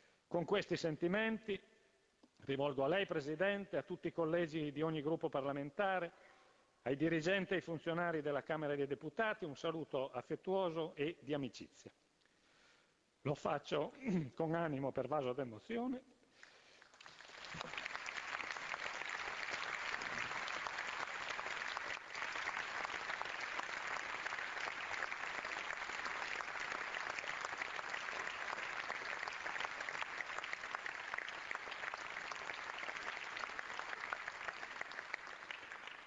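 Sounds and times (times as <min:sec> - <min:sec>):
crowd applauding: 0:16.5 - 0:36.0.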